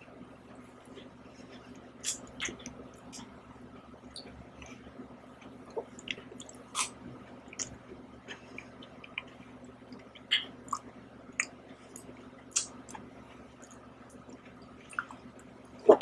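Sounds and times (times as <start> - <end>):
wet mouth eating sounds: 2.0 - 3.3, 5.6 - 13.0, 13.6 - 16.0.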